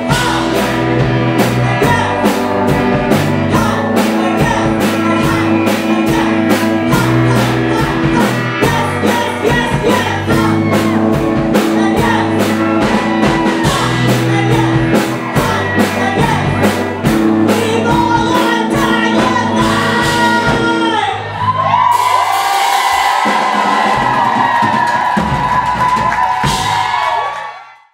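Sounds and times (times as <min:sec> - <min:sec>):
rock band playing: 0:00.0 - 0:27.4
woman singing into a microphone: 0:03.5 - 0:10.8, 0:11.6 - 0:12.6, 0:13.3 - 0:16.6, 0:17.5 - 0:21.2.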